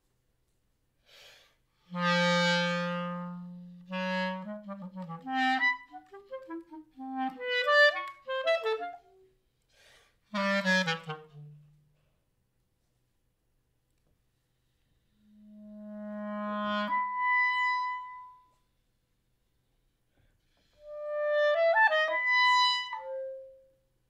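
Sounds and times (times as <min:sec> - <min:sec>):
breathy puff of air: 0:01.0 - 0:01.6
solo clarinet playing: 0:01.8 - 0:09.3, 0:10.3 - 0:11.9, 0:15.1 - 0:18.6, 0:20.8 - 0:23.8.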